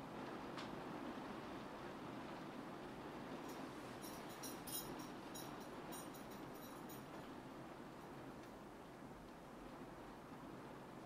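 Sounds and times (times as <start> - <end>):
rain hissing on window: 0.0 - 11.0
raindrops ticking on glass: 3.4 - 7.3.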